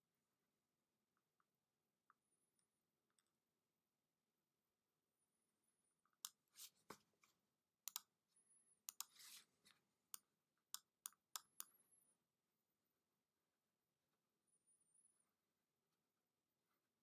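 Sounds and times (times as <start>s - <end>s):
faint computer mouse clicks: 7.9s - 8.1s.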